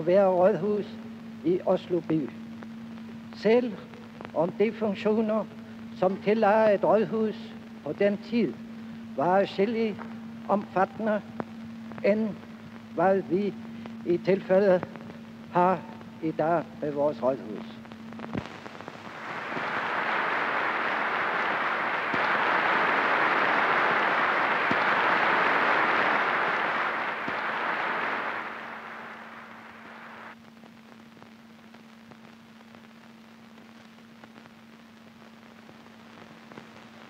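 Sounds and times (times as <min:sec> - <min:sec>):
film soundtrack hiss and hum: 0:00.0 - 0:37.0
large audience applauding: 0:19.1 - 0:30.3.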